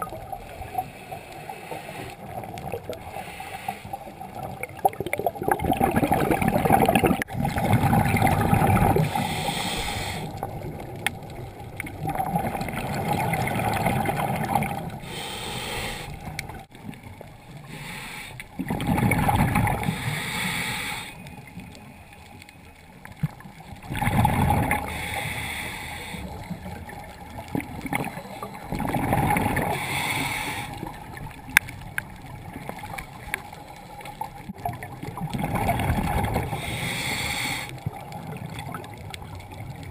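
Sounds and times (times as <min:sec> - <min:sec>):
regulator hiss on inhale: 0:00.6 - 0:02.4, 0:03.0 - 0:04.3, 0:09.0 - 0:10.5, 0:15.0 - 0:16.6, 0:17.6 - 0:18.6, 0:19.8 - 0:21.4, 0:24.8 - 0:26.7, 0:29.6 - 0:31.1, 0:36.4 - 0:37.8
exhaled bubbles rumbling: 0:04.1 - 0:15.2, 0:18.5 - 0:20.1, 0:23.0 - 0:25.1, 0:26.4 - 0:30.1, 0:30.7 - 0:36.7, 0:37.8 - 0:39.9.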